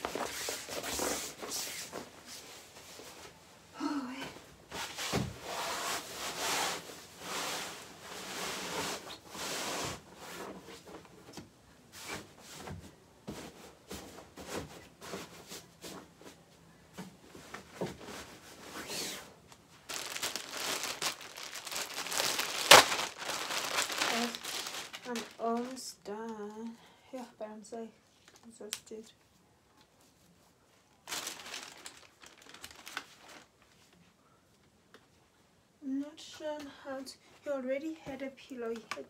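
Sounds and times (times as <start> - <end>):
plastic bag crinkling: 19.8 - 26.0, 31.0 - 33.6.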